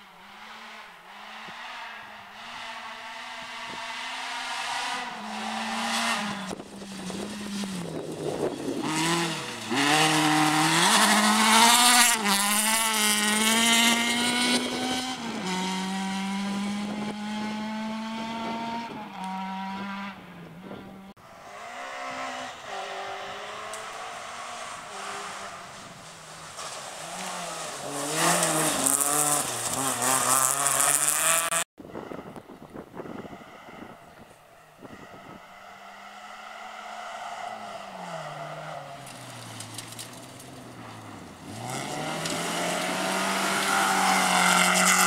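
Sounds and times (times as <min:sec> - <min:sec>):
rally car engine revving: 0:00.0 - 0:31.7, 0:34.8 - 0:45.0
tyres on gravel: 0:05.7 - 0:15.5, 0:23.4 - 0:31.6, 0:36.4 - 0:45.0.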